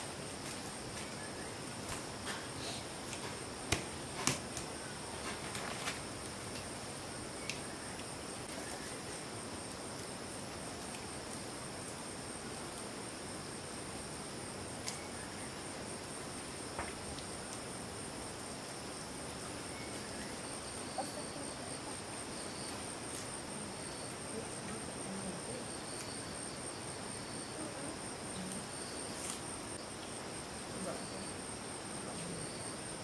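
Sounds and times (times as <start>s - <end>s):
high-pitched insect chorus: 0.0s - 33.0s
faint sharp clicks: 7.4s - 8.1s.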